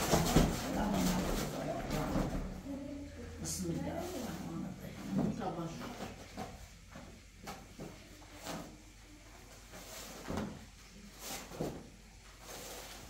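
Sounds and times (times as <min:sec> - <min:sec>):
fabric rustling: 0:00.0 - 0:02.6, 0:09.6 - 0:13.0.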